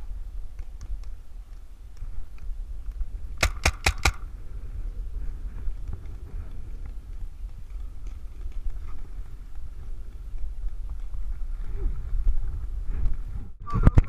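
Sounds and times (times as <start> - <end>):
low rumble on microphone: 4.1 - 14.0
footsteps on dry dirt: 5.2 - 13.4.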